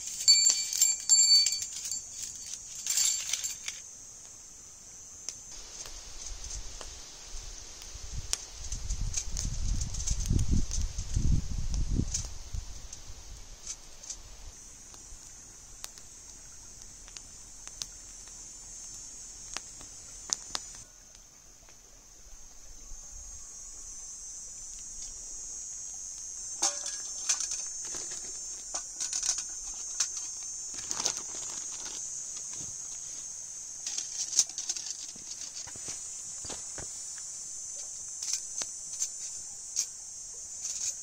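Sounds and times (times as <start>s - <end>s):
steady high hiss: 0.0s - 41.0s
pan set on grill: 26.3s - 41.0s
metal grill clicking and clattering: 26.6s - 30.4s.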